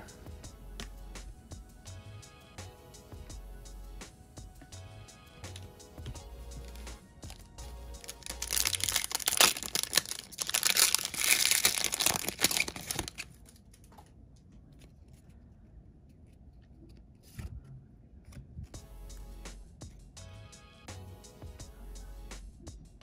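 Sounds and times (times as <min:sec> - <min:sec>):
foil wrapper tearing and crinkling: 0:06.6 - 0:13.6
cards clicking: 0:08.0 - 0:13.3.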